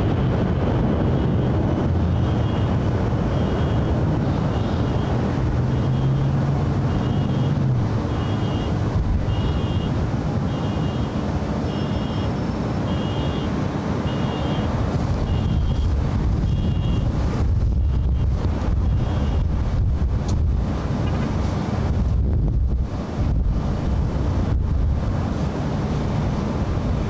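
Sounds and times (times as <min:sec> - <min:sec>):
wind buffeting microphone: 0:00.0 - 0:11.7, 0:13.5 - 0:27.0
jet engines rumbling: 0:00.0 - 0:27.0.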